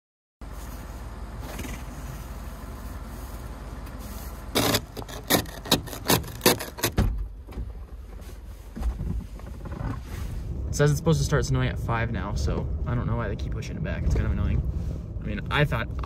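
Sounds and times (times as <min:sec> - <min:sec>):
brush sweeping snow: 0:00.5 - 0:01.2, 0:02.0 - 0:04.6
ice scraper rasping on glass: 0:04.6 - 0:06.9.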